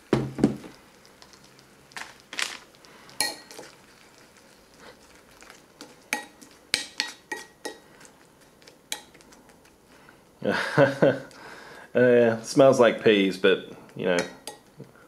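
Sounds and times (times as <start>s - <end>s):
spoon clinking against ceramic bowl: 3.2s - 3.7s, 6.1s - 7.8s, 14.2s - 14.7s.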